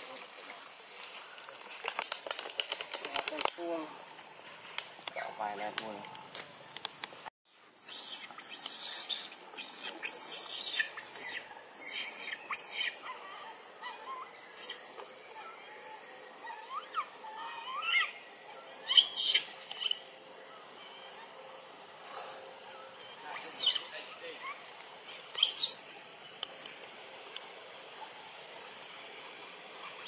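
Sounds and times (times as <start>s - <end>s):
scratchy rustling in trees: 0.0s - 5.0s, 26.5s - 30.0s
animal squeaks and chirps: 7.8s - 13.2s, 18.9s - 20.0s, 23.3s - 24.6s, 25.3s - 25.8s.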